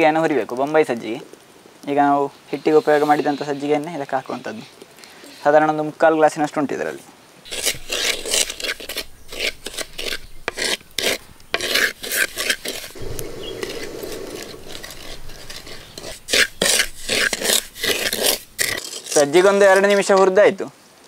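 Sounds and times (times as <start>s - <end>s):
spatula scraping grains in pot: 2.5s - 4.7s, 7.5s - 20.0s.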